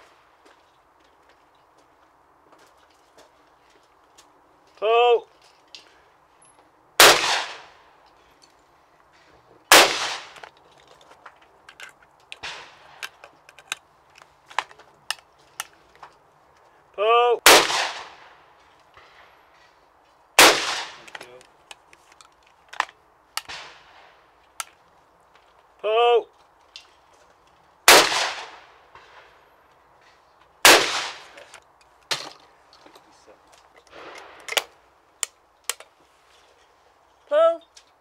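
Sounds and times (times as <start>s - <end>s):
shotgun shots echoing: 7.0s - 7.8s, 9.7s - 10.4s, 17.4s - 18.4s, 20.4s - 21.2s, 23.4s - 24.2s, 27.8s - 29.4s, 30.6s - 31.4s
gun handling clicks: 10.3s - 16.2s, 21.0s - 23.7s, 24.4s - 25.5s, 33.6s - 36.0s.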